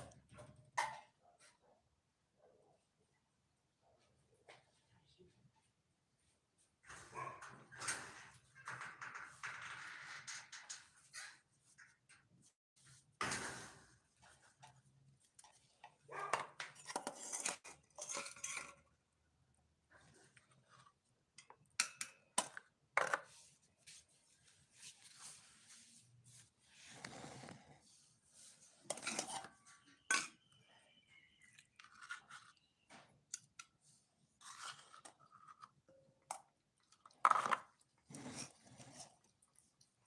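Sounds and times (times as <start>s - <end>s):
metal spoon clinking on steel bowls: 16.7s - 18.9s, 28.8s - 32.5s
cats lapping and chewing: 36.4s - 40.0s.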